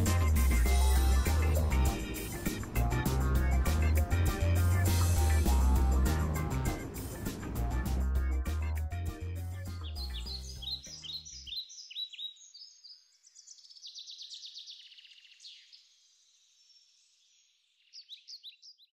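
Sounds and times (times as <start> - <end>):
background music: 0.0 - 11.3
small birds chirping: 0.0 - 19.0.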